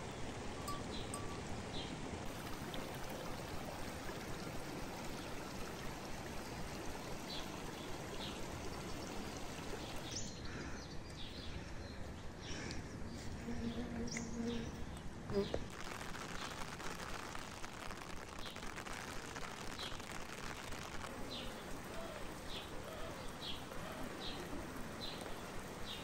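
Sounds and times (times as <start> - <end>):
birds chirping: 0.0 - 2.0, 4.9 - 15.7, 20.8 - 26.0
stream rushing over stones: 0.0 - 10.3, 15.6 - 26.0
low steady bird call: 4.7 - 15.6, 21.1 - 26.0.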